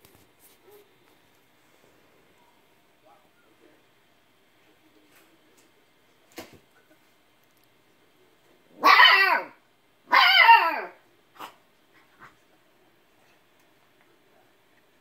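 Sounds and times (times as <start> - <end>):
puppy yelping barks: 8.8 - 11.5.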